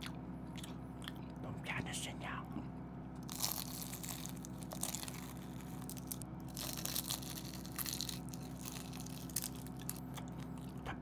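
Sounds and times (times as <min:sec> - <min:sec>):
chewing: 0:00.0 - 0:01.4
crunching bites into fried food: 0:03.2 - 0:10.8.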